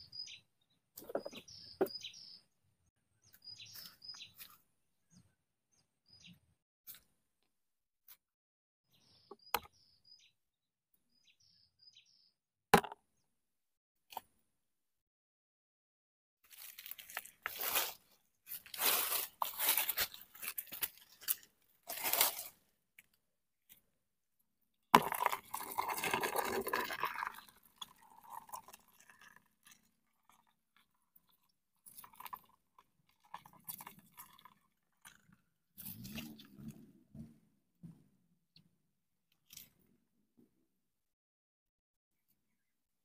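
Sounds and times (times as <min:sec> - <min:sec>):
dry leaves rustling: 0:16.5 - 0:22.6
plastic container crackling: 0:25.0 - 0:29.2.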